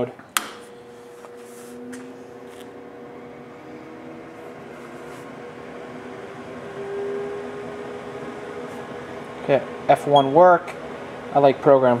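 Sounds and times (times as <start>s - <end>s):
machine fan hum with tones: 0.0s - 12.0s.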